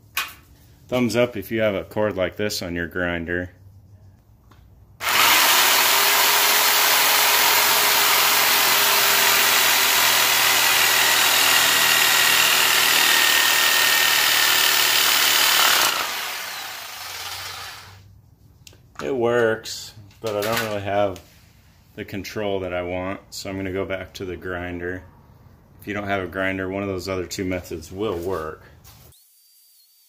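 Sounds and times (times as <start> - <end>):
jigsaw cutting plastic: 5.0 - 18.0.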